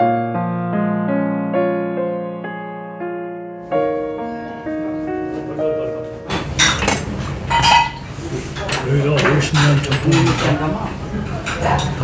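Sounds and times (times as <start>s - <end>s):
soft piano music: 0.0s - 11.0s
utensils clinking against dishes: 6.3s - 12.0s
people talking: 8.3s - 12.0s.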